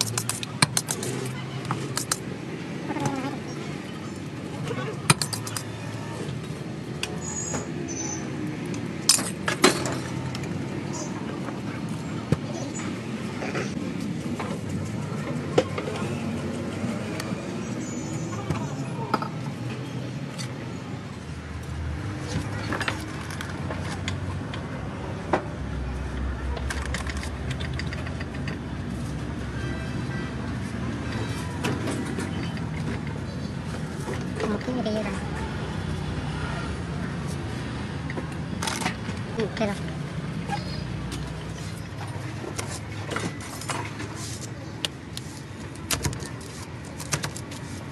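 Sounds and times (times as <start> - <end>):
low traffic rumble: 0.0 - 47.9
metal utensils clicking: 5.1 - 5.7.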